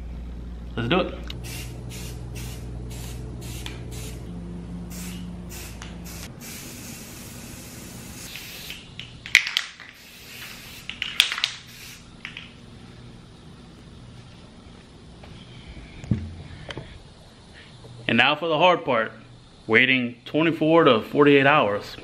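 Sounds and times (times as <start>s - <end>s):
short bursts of spray: 1.4s - 4.3s, 4.9s - 8.9s, 9.7s - 12.1s
spray hiss: 1.4s - 4.3s, 4.9s - 8.9s, 9.8s - 12.1s
spray can ball rattling: 5.0s - 12.5s.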